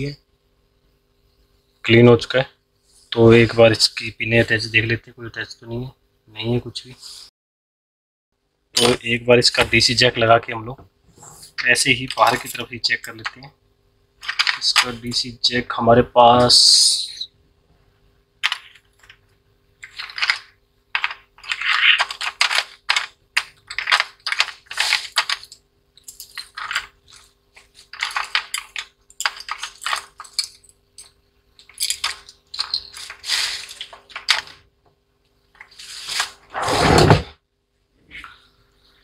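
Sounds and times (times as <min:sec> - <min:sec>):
faint steady hum: 0:00.0 - 0:07.2, 0:08.4 - 0:39.0
small hard objects clinking: 0:23.6 - 0:34.4.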